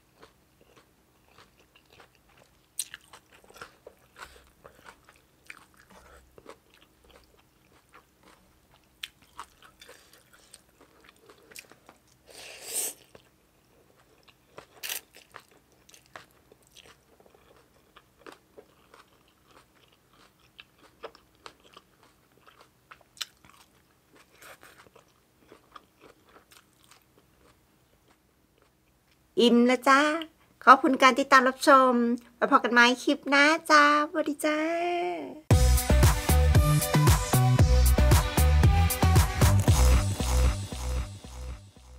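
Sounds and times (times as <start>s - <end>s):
person chewing and crunching food: 0.0s - 29.3s.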